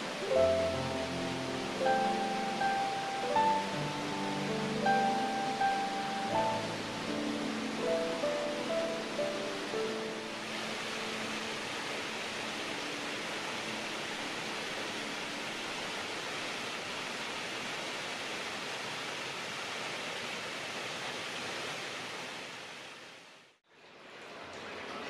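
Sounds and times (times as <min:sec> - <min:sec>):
water rushing: 0:00.0 - 0:25.0.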